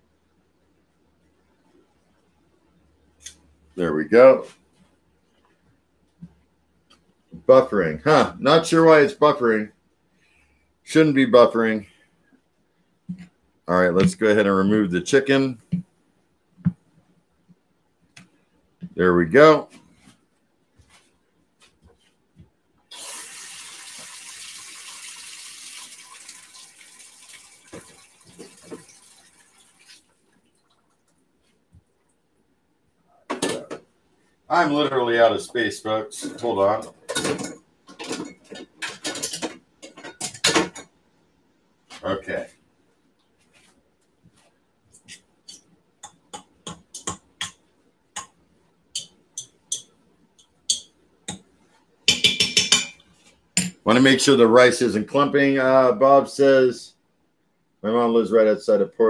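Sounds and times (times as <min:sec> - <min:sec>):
utensil clinking against metal pot: 0:49.0 - 0:51.4, 0:52.1 - 0:53.0.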